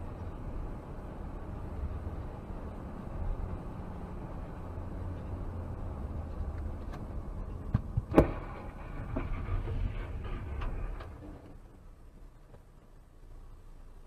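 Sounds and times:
vehicle road and engine rumble: 0.0 - 14.0
truck crash thuds and bang: 7.7 - 11.4.

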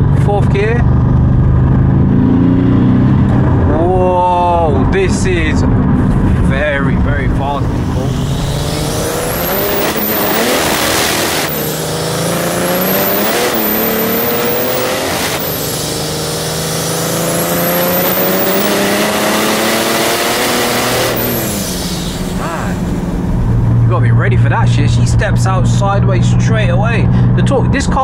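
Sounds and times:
diesel engine accelerating: 0.0 - 28.0
turbo whistle: 7.9 - 19.4.

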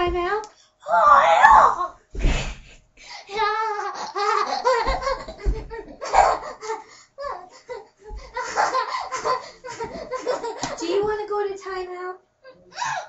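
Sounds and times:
child laughing: 3.3 - 11.0.

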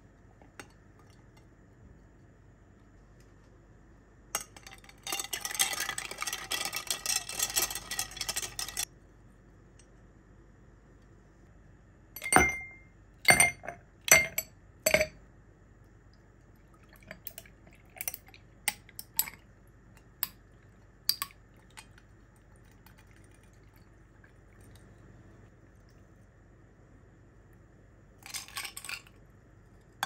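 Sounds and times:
ice cubes clinking against glass: 4.4 - 8.8, 28.2 - 29.2.

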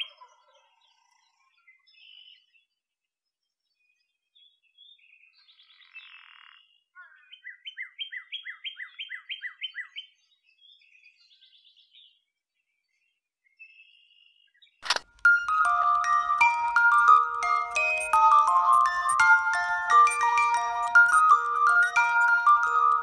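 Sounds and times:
bird chirping: 14.8 - 23.0.

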